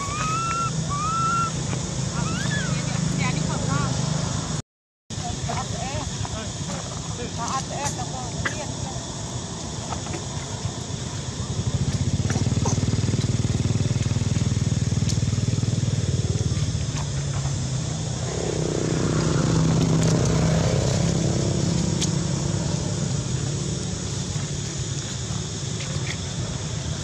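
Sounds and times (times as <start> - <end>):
small motorcycle engine running: 0.0 - 4.6, 10.4 - 27.0.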